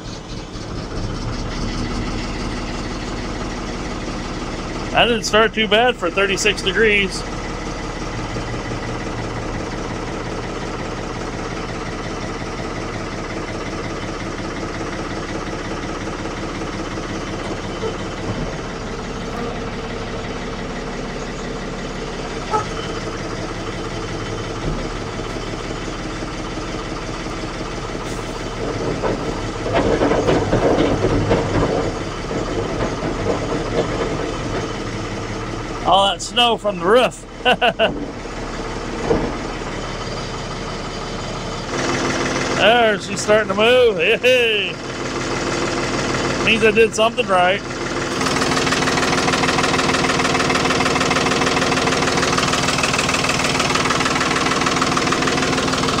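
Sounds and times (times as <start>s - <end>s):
diesel tractor engine idling: 0.0s - 56.0s.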